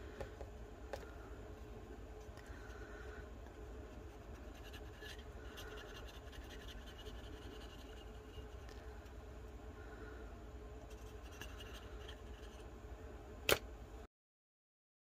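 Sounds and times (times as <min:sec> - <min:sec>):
marker scratching on glossy surface: 0:03.5 - 0:09.0, 0:10.8 - 0:12.7.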